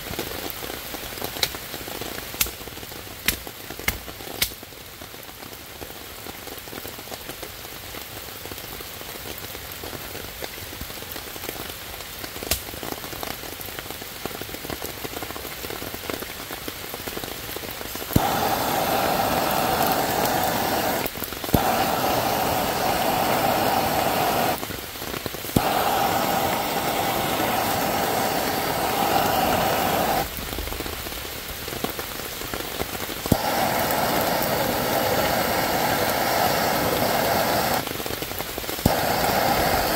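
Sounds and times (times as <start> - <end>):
steady rain: 0.0 - 39.9
gas torch flame hissing: 17.9 - 30.4, 33.2 - 39.9.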